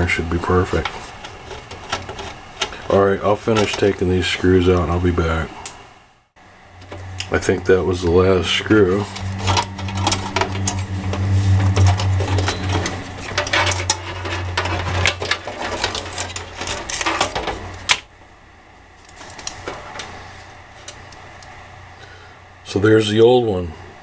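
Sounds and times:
steady low hum: 0:00.0 - 0:24.0
clicks and rattles of computer parts: 0:00.7 - 0:02.9, 0:11.7 - 0:18.1.

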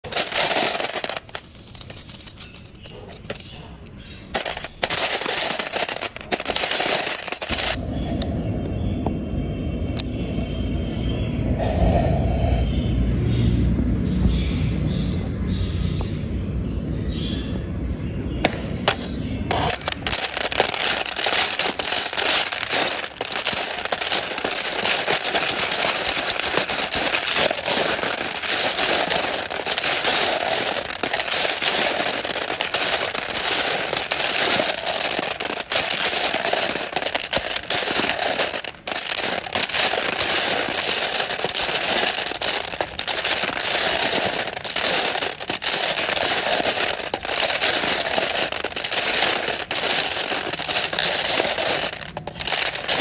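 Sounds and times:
glass marbles rattling: 0:00.0 - 0:07.8, 0:19.5 - 0:53.0.

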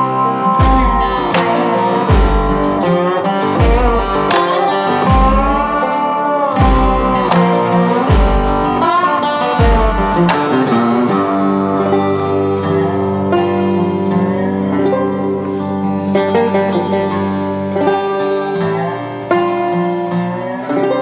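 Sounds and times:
guitar music: 0:00.0 - 0:21.0
low drum beat: 0:00.6 - 0:05.9, 0:06.6 - 0:10.8.

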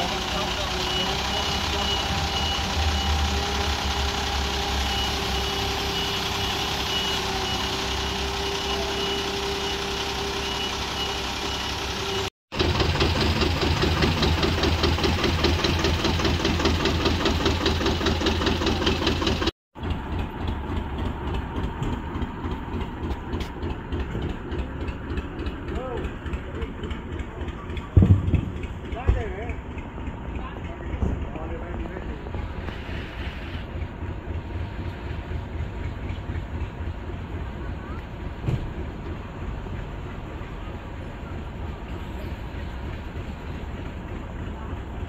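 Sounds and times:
diesel engine running: 0:00.0 - 0:45.0
engine chugging fast: 0:00.0 - 0:45.0
tractor engine chugging: 0:00.0 - 0:45.0
rapid warning beeps: 0:00.3 - 0:03.4.

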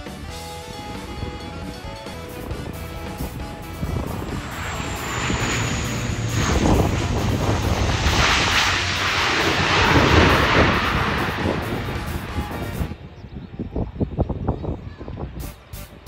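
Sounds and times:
jet airliner passing overhead: 0:02.6 - 0:13.0.

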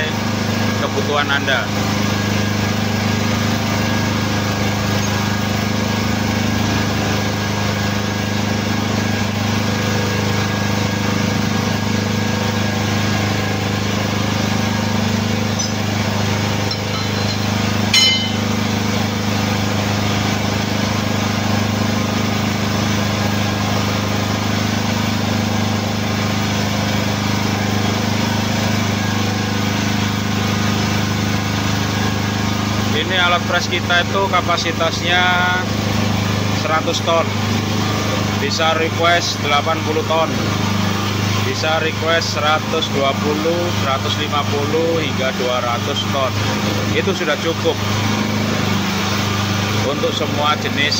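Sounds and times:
hydraulic power unit humming: 0:00.0 - 0:50.9
sharp metallic clink: 0:15.6 - 0:15.9, 0:16.7 - 0:18.5.

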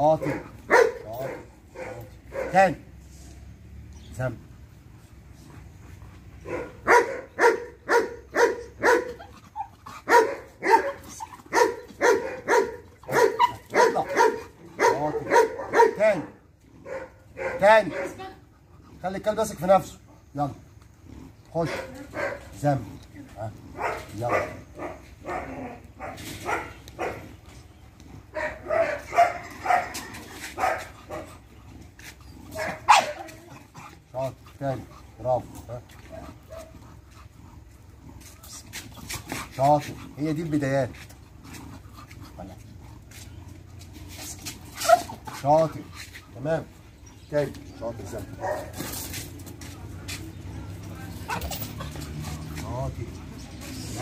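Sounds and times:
dog barking: 0:00.2 - 0:02.7, 0:06.4 - 0:09.3, 0:10.1 - 0:18.3, 0:21.6 - 0:22.5, 0:23.8 - 0:27.3, 0:28.3 - 0:31.4, 0:32.5 - 0:33.3, 0:36.1 - 0:36.8, 0:44.8 - 0:45.2, 0:48.4 - 0:48.8.

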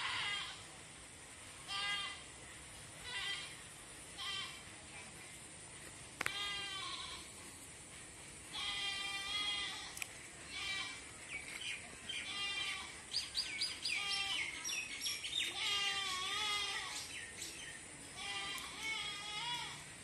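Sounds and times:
quavering bleating: 0:00.0 - 0:00.6, 0:01.7 - 0:02.2, 0:03.0 - 0:03.6, 0:06.3 - 0:07.3, 0:08.5 - 0:11.0, 0:12.2 - 0:13.0, 0:13.9 - 0:14.6, 0:15.5 - 0:17.0, 0:18.2 - 0:19.8.

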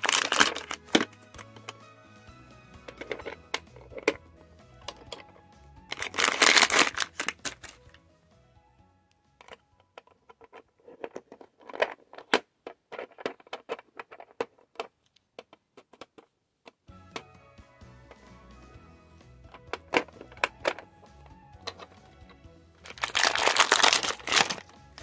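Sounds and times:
plastic toy doors clicking: 0:00.0 - 0:01.8, 0:09.4 - 0:17.2, 0:19.5 - 0:20.9, 0:22.9 - 0:25.0
rustling: 0:05.9 - 0:07.9, 0:22.8 - 0:25.0.

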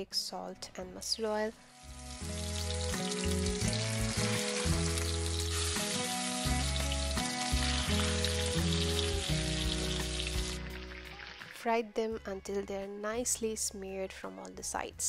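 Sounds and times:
background music: 0:00.0 - 0:15.0
fish sizzling in hot oil: 0:01.4 - 0:11.5.

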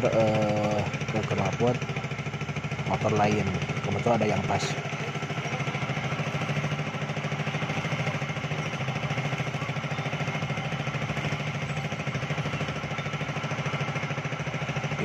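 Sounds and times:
pulsing machine hum: 0:00.0 - 0:15.0.

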